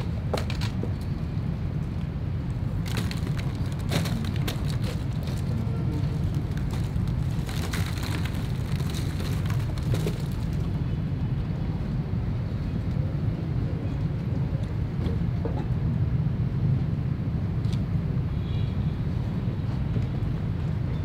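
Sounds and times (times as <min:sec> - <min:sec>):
low outdoor rumble: 0:00.0 - 0:17.2.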